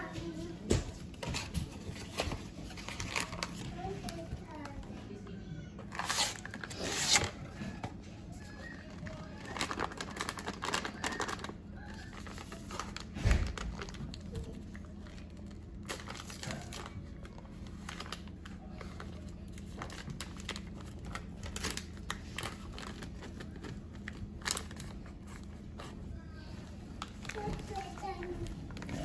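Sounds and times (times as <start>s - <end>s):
bag crinkling: 8.8s - 25.2s.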